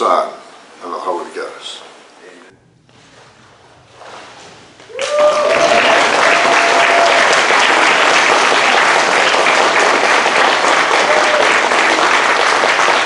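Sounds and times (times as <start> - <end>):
person cheering: 4.9 - 7.9, 10.8 - 12.1
congregation applauding: 4.9 - 13.0.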